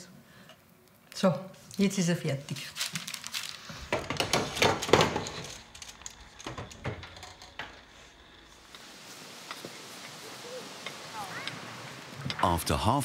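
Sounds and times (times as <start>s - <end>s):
metal baking tray clattering: 3.9s - 7.2s.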